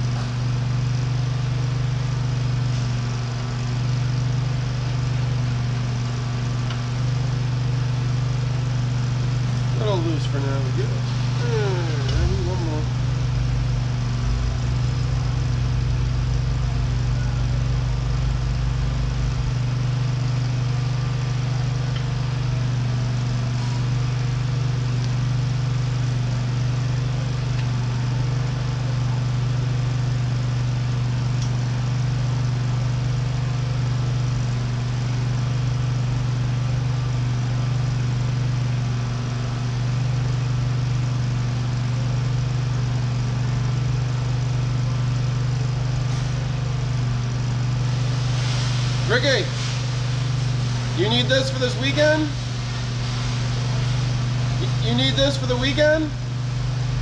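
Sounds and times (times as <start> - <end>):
low machine hum: 0.0 - 57.0.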